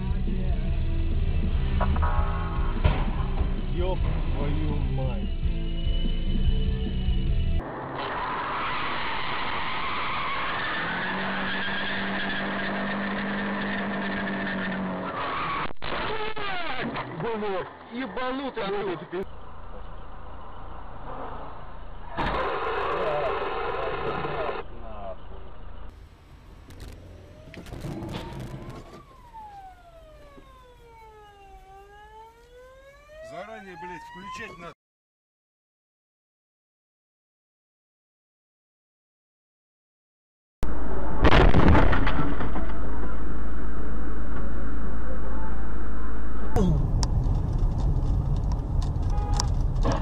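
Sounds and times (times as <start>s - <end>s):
car road and engine noise: 0.0s - 34.6s, 42.3s - 50.0s
burst of noise: 7.6s - 11.2s, 20.8s - 24.6s, 40.7s - 43.9s
police siren wailing: 27.1s - 34.8s.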